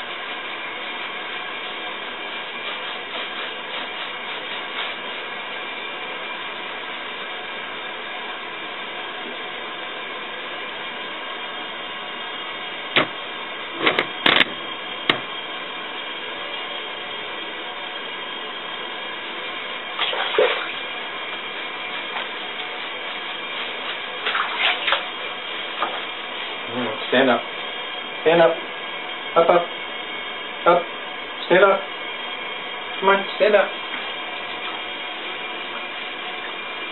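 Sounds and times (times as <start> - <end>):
water splashing in a bathtub: 19.8 - 26.6, 33.7 - 36.9.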